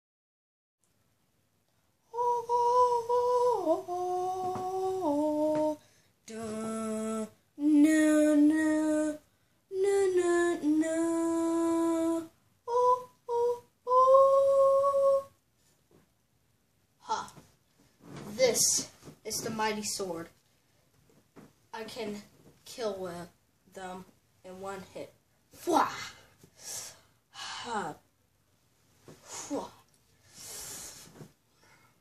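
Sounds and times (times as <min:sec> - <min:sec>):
person singing wordless tune: 0:02.1 - 0:15.4
breaths: 0:05.8 - 0:06.2, 0:26.2 - 0:27.7, 0:29.1 - 0:32.0.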